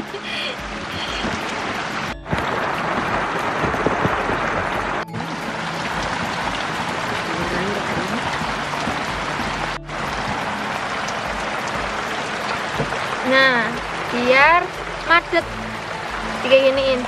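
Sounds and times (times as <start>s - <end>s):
steady rain: 0.0s - 17.0s.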